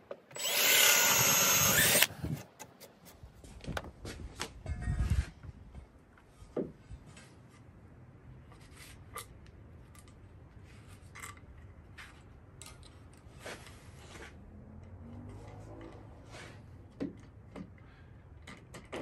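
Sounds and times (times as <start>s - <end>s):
power drill: 0.3s - 2.4s.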